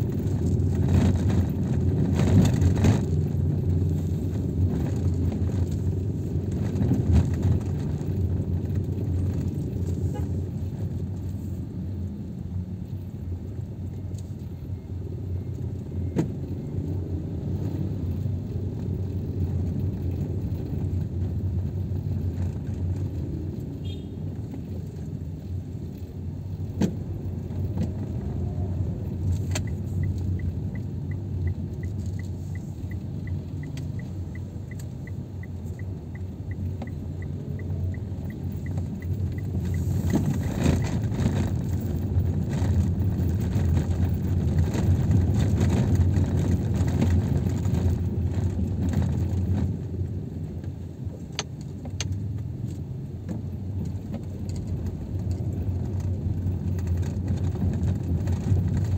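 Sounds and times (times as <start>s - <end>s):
car engine and road rumble: 0.0s - 58.9s
turn signal ticking: 28.8s - 48.1s.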